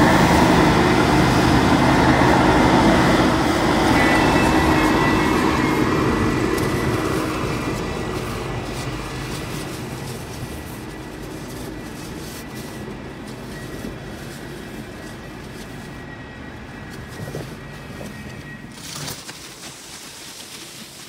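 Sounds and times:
snowplow engine rumble with whine: 0.0s - 21.0s.

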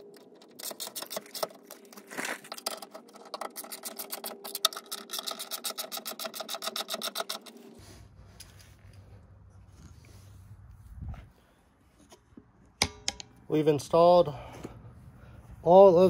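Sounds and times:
low hum: 7.6s - 13.6s.

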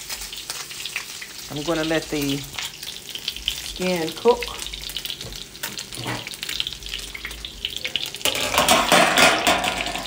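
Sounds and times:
fish sizzling and crackling in pan: 0.0s - 10.0s.

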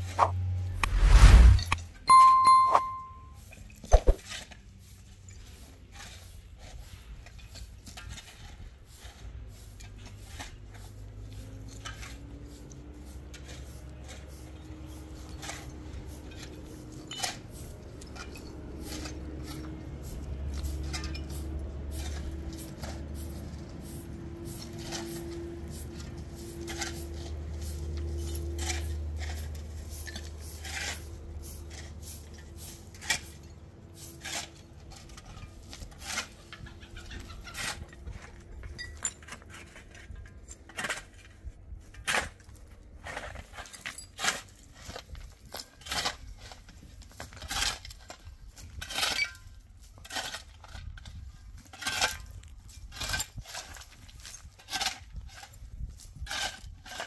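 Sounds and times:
faint rising tone: 0.2s - 3.3s.

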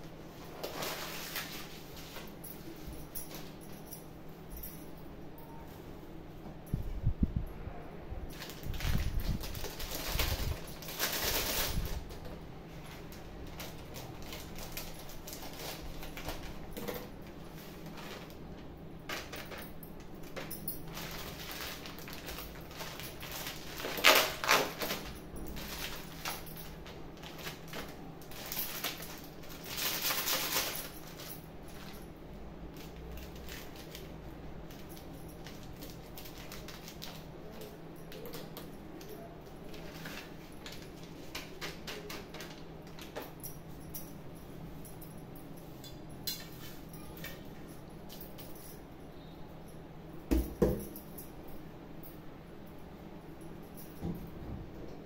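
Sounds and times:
plastic packets crinkling: 8.3s - 32.0s, 32.7s - 43.2s.

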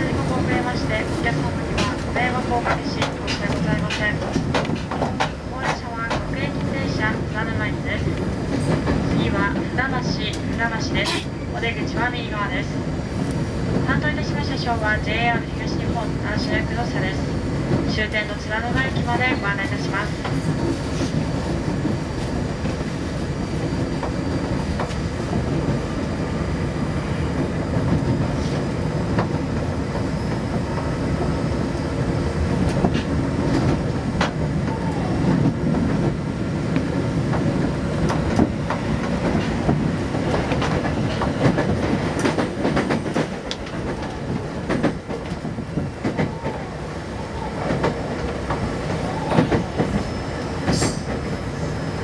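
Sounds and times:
train wheels rumbling on rail: 0.0s - 52.0s
wheels clicking over rail joints: 1.7s - 6.4s.

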